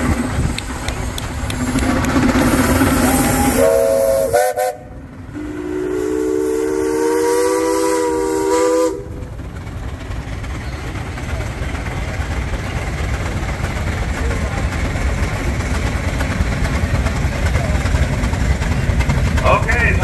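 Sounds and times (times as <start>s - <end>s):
steam hissing: 0.0s - 20.0s
short steam whistle blast: 2.8s - 9.1s
long low chord whistle: 2.8s - 9.2s.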